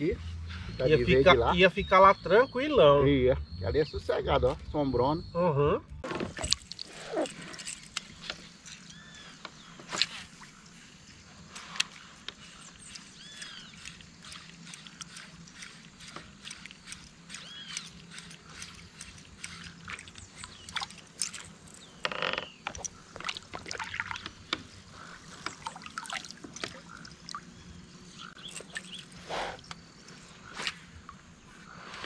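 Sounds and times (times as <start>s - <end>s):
birds chirping and calling: 0.0s - 23.6s, 24.2s - 32.0s
water lapping around kayak: 6.0s - 32.0s.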